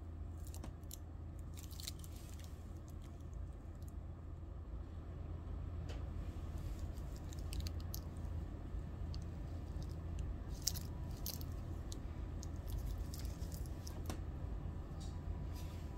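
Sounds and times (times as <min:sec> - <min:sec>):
steady low hum: 0:00.0 - 0:15.9
watch bracelet handling clicks: 0:07.0 - 0:08.1, 0:10.6 - 0:14.1.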